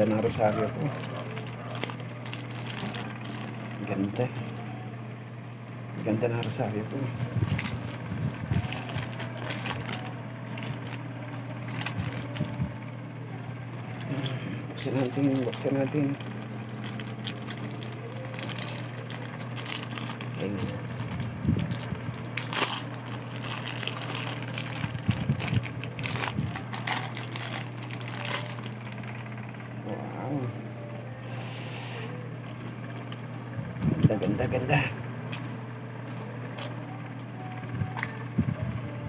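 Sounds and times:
plastic bags crinkling: 0.0s - 4.8s, 6.0s - 12.7s, 13.7s - 29.4s, 32.4s - 33.4s
steady low hum: 0.0s - 39.0s.

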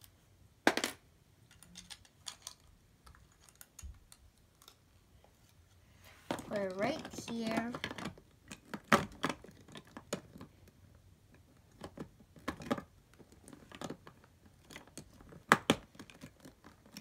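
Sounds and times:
plastic bricks clicking: 0.7s - 4.8s.

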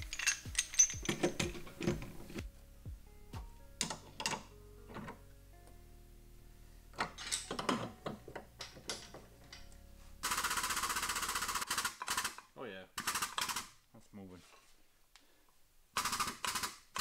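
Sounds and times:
fast metallic chain rattle: 0.0s - 1.6s
sharp metal clanks: 0.0s - 2.0s.

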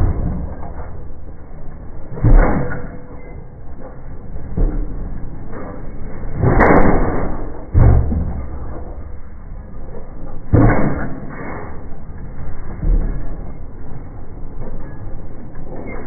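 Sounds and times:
rammer thudding on ground: 6.3s - 9.1s, 10.5s - 11.3s.

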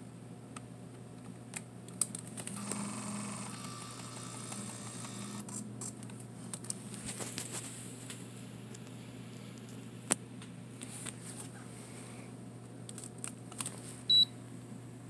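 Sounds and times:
lens zoom motor whirring: 2.5s - 5.6s.

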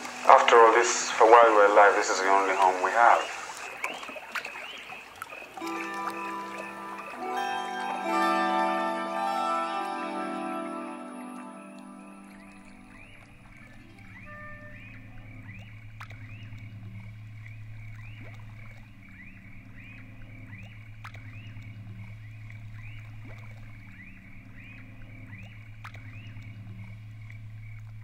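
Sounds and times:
steady low drone: 5.6s - 28.0s.

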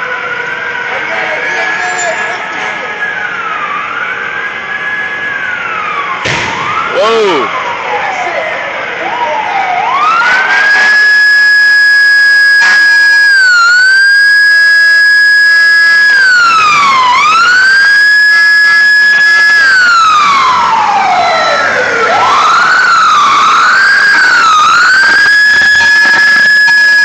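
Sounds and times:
emergency vehicle siren: 0.0s - 27.0s.

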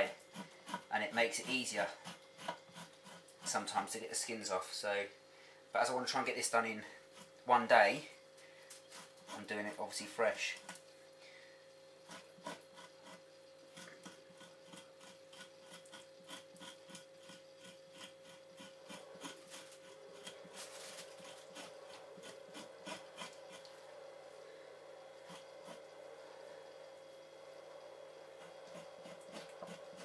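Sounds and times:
knife scraping hide: 0.0s - 4.0s, 7.0s - 7.4s, 8.9s - 9.8s, 12.0s - 23.7s, 25.2s - 25.9s, 28.3s - 30.0s.

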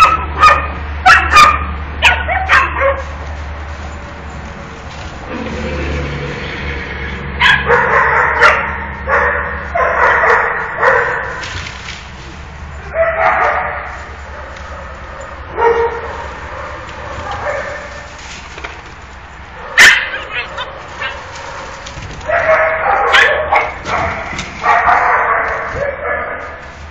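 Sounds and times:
small dogs barking and yipping: 0.0s - 4.5s, 7.3s - 11.4s, 12.8s - 18.2s, 19.5s - 26.7s.

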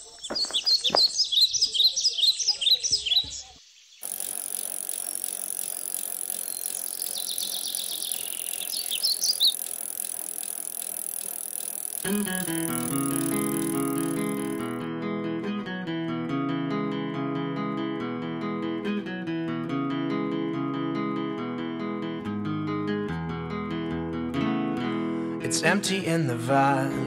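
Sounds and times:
birds chirping: 0.0s - 14.8s
bicycles riding by: 4.0s - 14.8s
acoustic guitar strumming: 12.0s - 25.4s.

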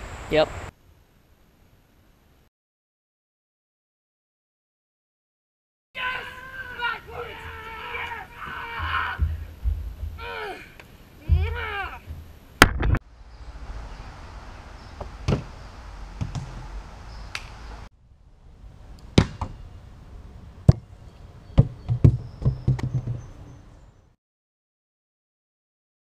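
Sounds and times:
outdoor background noise: 0.0s - 2.5s, 6.0s - 24.2s.

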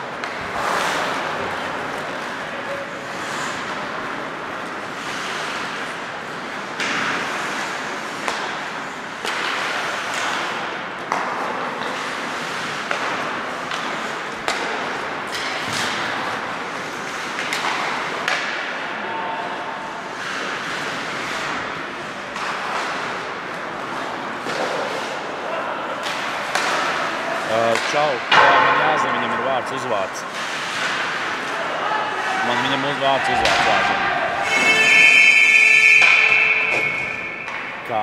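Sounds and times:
skates scraping ice: 0.0s - 18.8s, 19.4s - 28.2s, 29.0s - 35.2s
hockey stick clacking on puck: 0.1s - 2.4s, 6.7s - 16.4s, 17.0s - 18.6s, 26.0s - 29.7s, 33.3s - 34.8s.

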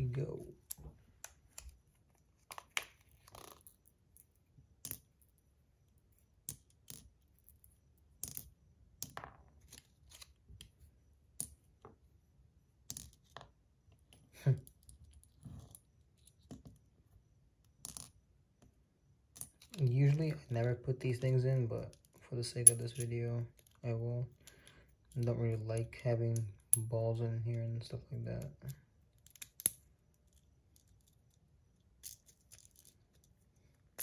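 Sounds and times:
light metallic clicks of balls: 19.4s - 31.4s.

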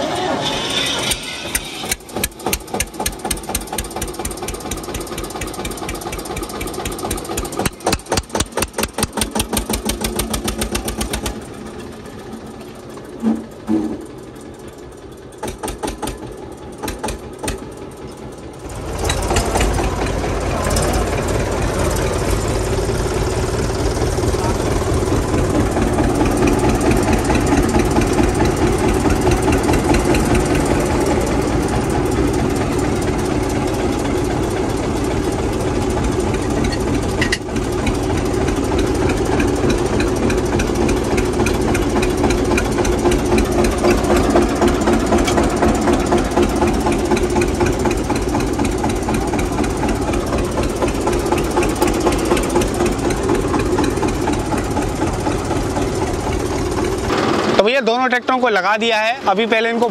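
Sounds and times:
tractor engines idling: 0.0s - 59.9s.

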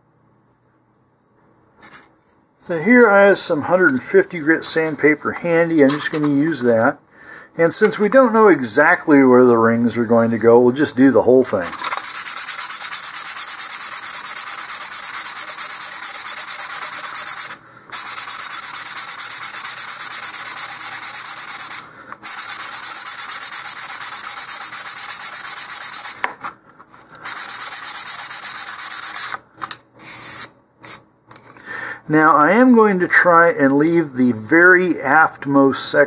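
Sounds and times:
sandpaper rubbing by hand: 4.7s - 6.7s, 11.6s - 26.3s, 27.1s - 29.4s, 30.0s - 31.0s.

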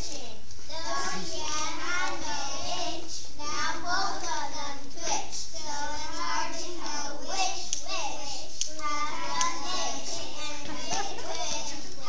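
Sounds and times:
children reciting in unison: 0.0s - 12.0s.

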